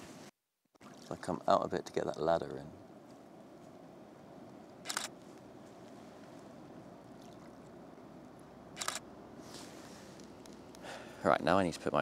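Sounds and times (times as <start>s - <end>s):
low steady background noise: 0.0s - 12.0s
camera shutter clicks: 4.8s - 5.2s, 8.8s - 9.0s.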